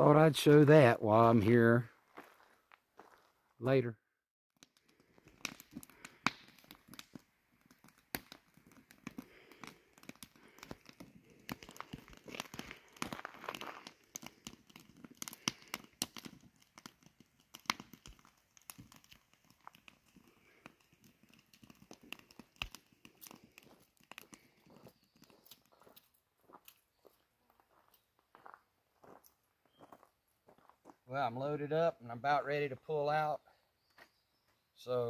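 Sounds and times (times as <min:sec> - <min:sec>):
sharp pops and snaps: 0:04.6 - 0:26.8
campfire crackling: 0:04.6 - 0:30.3.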